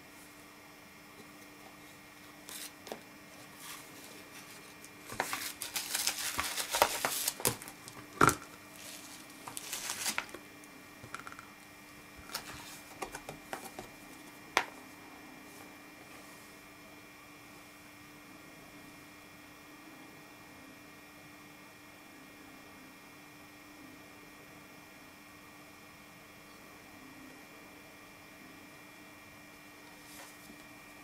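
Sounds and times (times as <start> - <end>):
plastic packaging crinkling: 3.6 - 10.4, 12.2 - 13.9.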